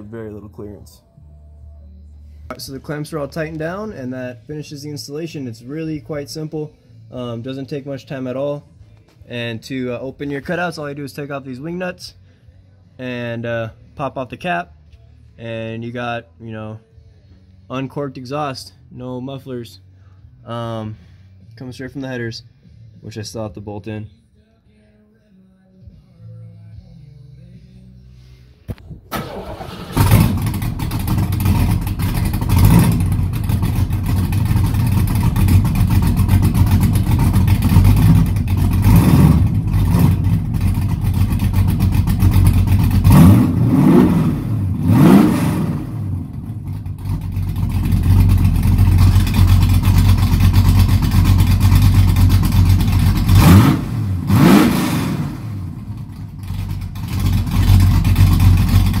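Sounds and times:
car engine cranking and starting: 28.7 - 59.0
loud car engine revving: 29.5 - 59.0.

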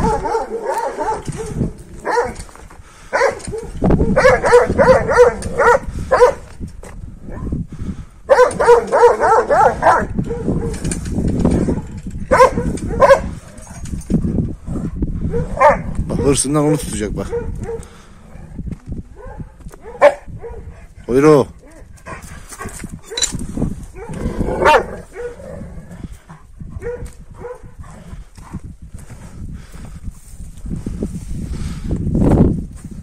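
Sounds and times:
dogs barking excitedly: 0.0 - 6.5, 8.2 - 14.0, 15.2 - 25.8, 26.7 - 28.2.

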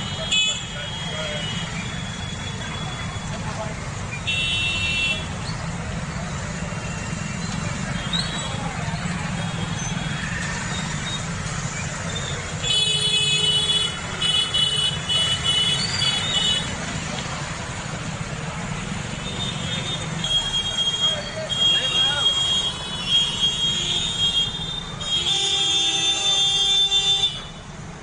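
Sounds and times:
street traffic engine hum: 0.0 - 28.0
vehicle horn honking: 4.3 - 5.3, 19.4 - 27.5.

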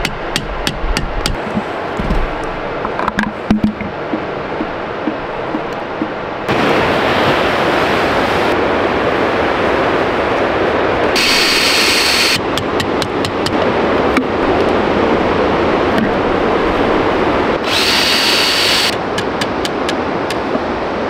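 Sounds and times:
river rushing over rapids: 3.8 - 19.2.

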